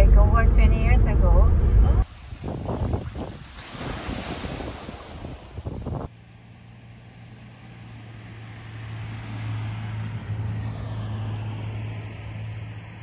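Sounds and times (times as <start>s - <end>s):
motor vehicle passing: 5.6s - 13.0s.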